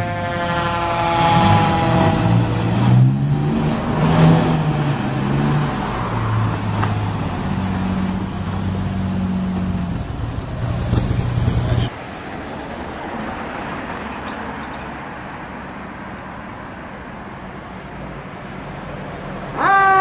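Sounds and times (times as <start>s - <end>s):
fire engine diesel engine accelerating: 0.2s - 11.9s.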